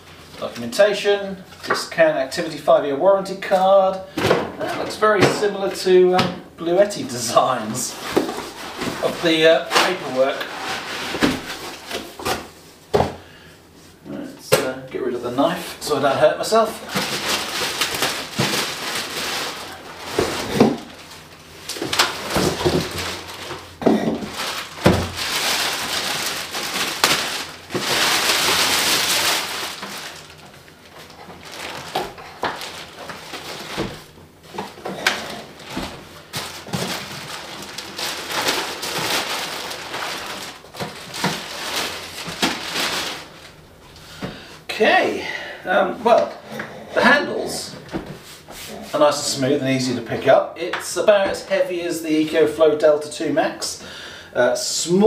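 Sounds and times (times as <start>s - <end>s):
plastic packaging crinkling: 6.7s - 12.3s, 15.8s - 44.1s.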